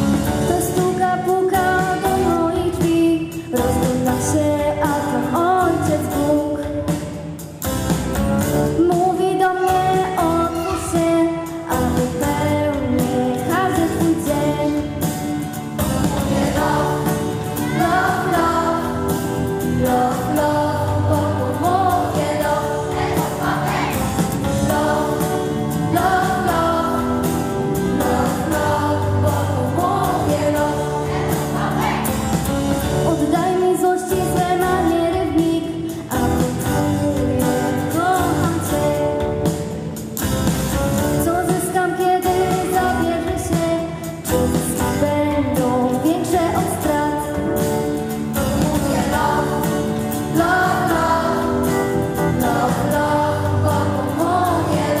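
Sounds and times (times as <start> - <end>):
children's choir singing: 0.0 - 6.4, 8.9 - 39.2, 48.4 - 55.0
instrumental accompaniment with beat: 0.0 - 55.0.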